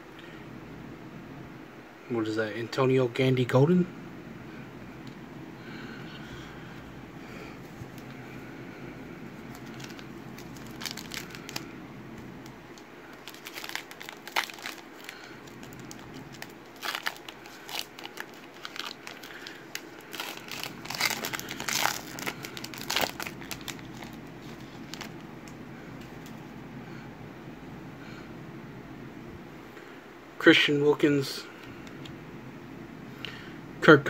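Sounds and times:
foil wrapper crinkling and tearing: 0:09.4 - 0:11.7, 0:12.4 - 0:26.2.

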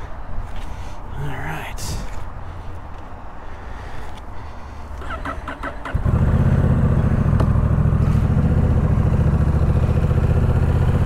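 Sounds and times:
motorcycle engine starting and idling: 0:04.9 - 0:11.0.

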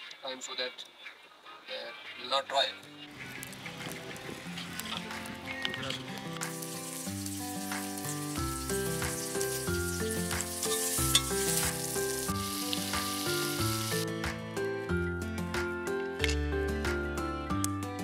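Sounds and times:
background music: 0:01.4 - 0:18.0
vegetables sizzling in a pot: 0:03.1 - 0:14.0.

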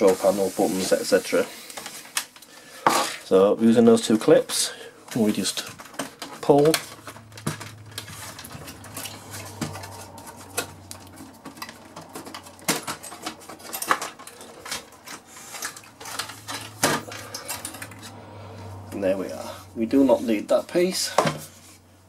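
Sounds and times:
plastic and metal clicks and scrapes: 0:05.1 - 0:18.2.

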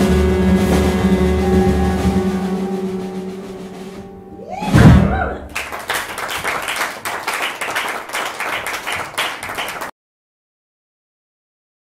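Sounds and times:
jazz quartet chord: 0:00.0 - 0:04.4
loud sudden cry or hit: 0:04.4 - 0:05.6
audience applauding: 0:05.5 - 0:09.9.

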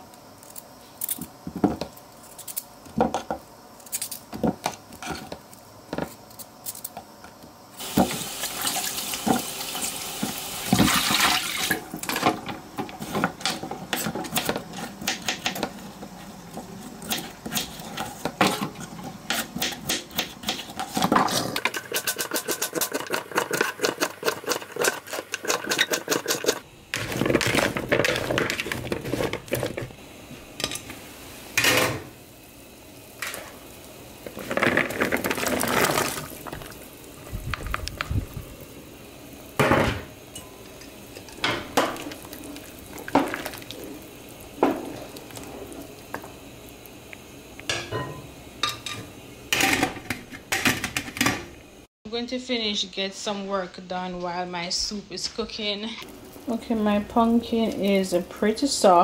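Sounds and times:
pot boiling hard: 0:07.7 - 0:51.9, 0:56.0 - 0:59.0.

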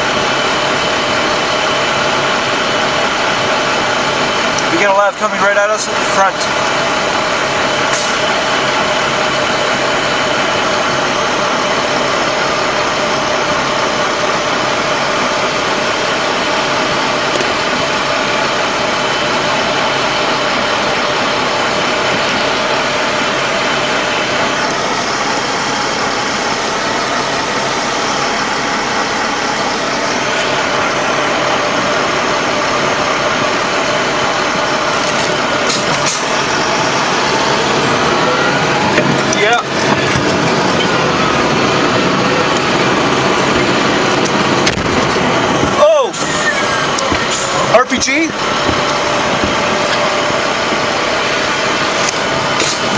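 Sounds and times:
diesel engine running: 0:00.0 - 0:52.9.

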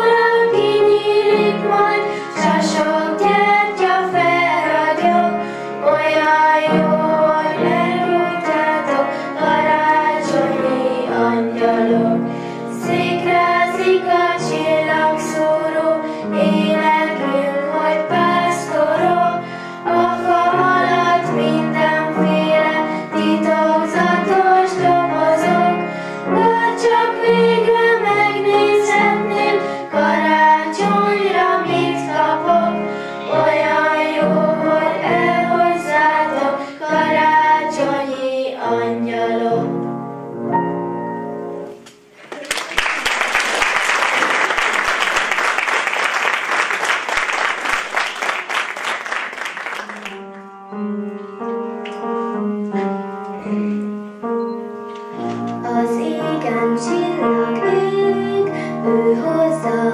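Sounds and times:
children singing: 0:00.0 - 0:39.8, 0:55.6 - 0:59.9
audience applause: 0:42.2 - 0:50.4
instrumental accompaniment: 0:49.7 - 0:59.9.

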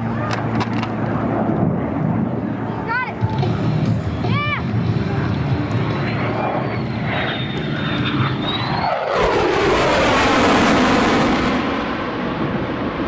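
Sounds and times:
fighter jet passing in afterburner: 0:00.0 - 0:13.0
thin high jet whine: 0:02.4 - 0:12.3.

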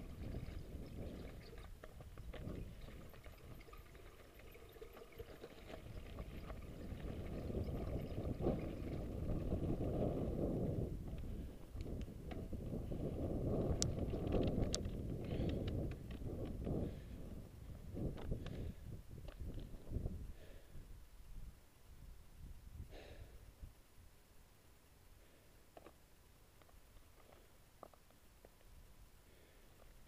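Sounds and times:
sharp clicks and rattles: 0:00.0 - 0:09.6, 0:13.7 - 0:16.7
bike tyres crunching on rocky trail: 0:00.0 - 0:17.1
wind buffeting microphone: 0:00.0 - 0:23.7.

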